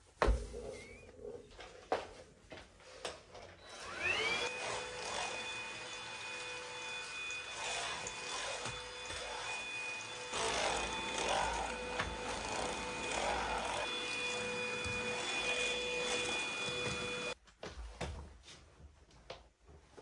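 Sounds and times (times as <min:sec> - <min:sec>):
vacuum cleaner motor whine: 0:03.6 - 0:17.4.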